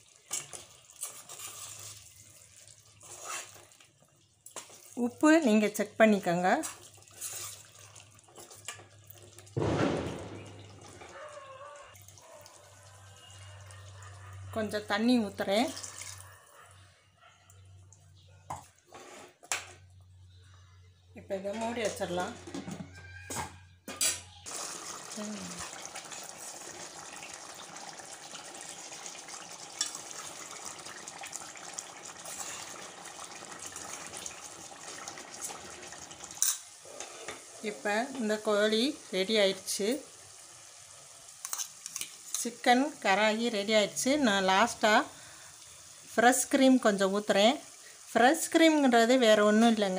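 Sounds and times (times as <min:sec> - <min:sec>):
ladle stirring: 0:00.0 - 0:05.0, 0:06.6 - 0:09.5
water splash and sizzle: 0:00.0 - 0:13.8, 0:24.5 - 0:49.9.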